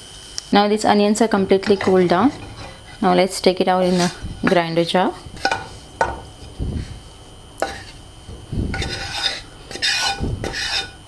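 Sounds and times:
spatula scraping frying pan: 1.2s - 11.0s
spatula knocking on pan: 5.4s - 6.3s.

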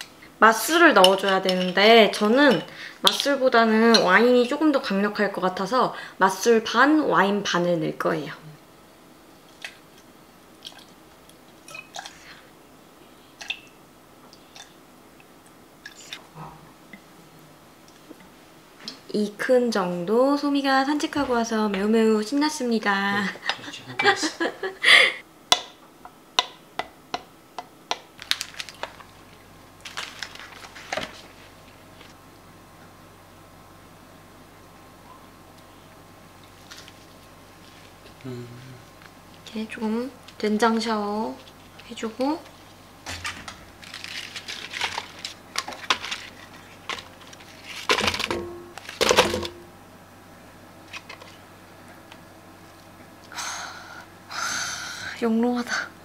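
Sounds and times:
rustling of food handled with tongs: 28.2s - 32.1s, 41.4s - 49.1s.

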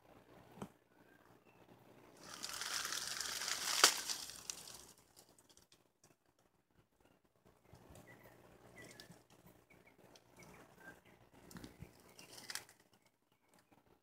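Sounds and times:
sharp twig crack: 2.2s - 5.0s, 12.2s - 12.8s
leaves and twigs crunching: 2.2s - 5.6s, 11.6s - 12.8s.

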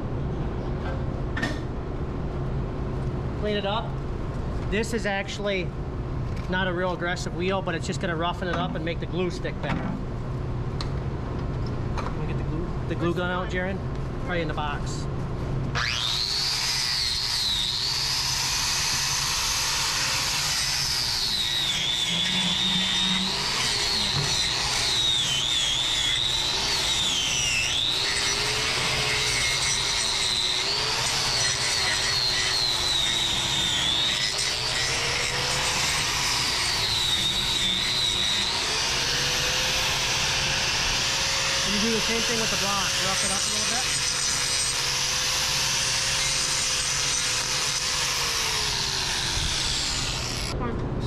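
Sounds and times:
angle grinder grinding hoof: 15.7s - 50.6s.

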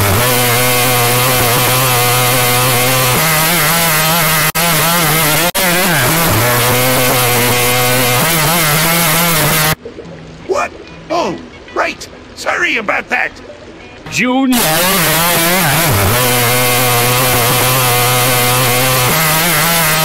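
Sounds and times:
buzzing synthetic voice: 0.0s - 9.8s, 14.1s - 20.0s.

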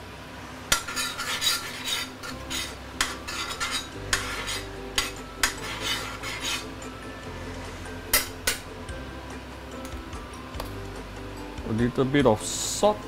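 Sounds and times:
metal spoon scraping pan: 0.7s - 6.8s.

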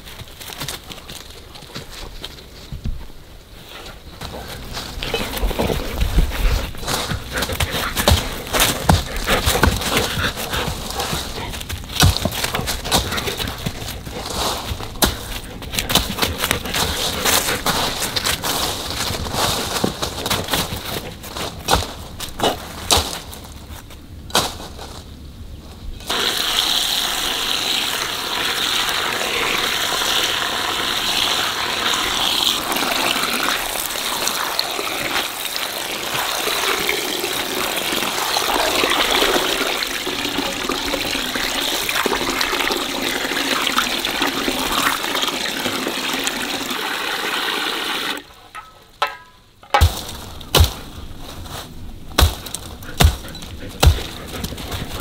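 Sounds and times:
sharp knocks: 48.6s - 50.9s.

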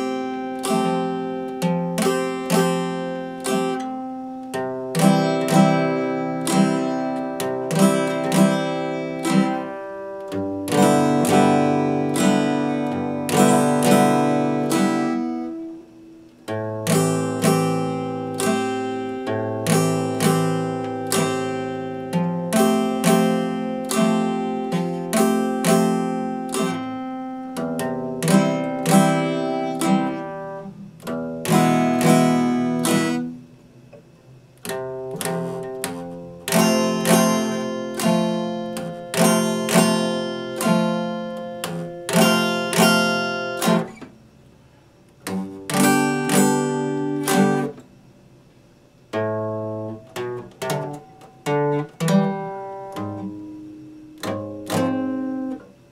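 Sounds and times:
acoustic guitar strummed: 0.0s - 55.9s.

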